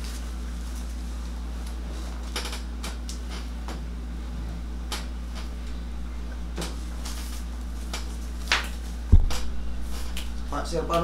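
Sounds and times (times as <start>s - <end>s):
steady low hum: 0.0s - 11.0s
sharp low thump: 9.1s - 9.6s.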